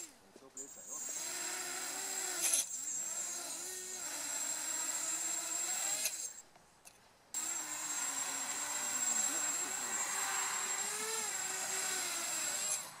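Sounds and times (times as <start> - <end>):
steady high-pitched tone: 7.4 - 11.8
drone motors whining: 7.4 - 13.0.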